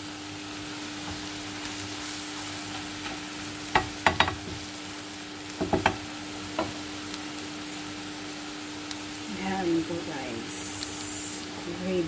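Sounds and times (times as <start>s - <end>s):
food sizzling in a frying pan: 0.0s - 12.0s
spatula knocking and scraping pan: 3.7s - 4.6s, 5.6s - 6.0s.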